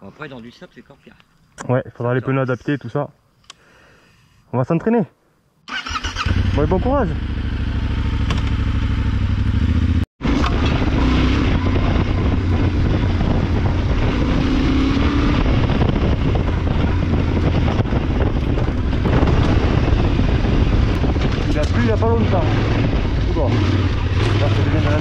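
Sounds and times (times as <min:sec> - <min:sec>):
motorcycle riding on dirt track: 0:06.3 - 0:25.0.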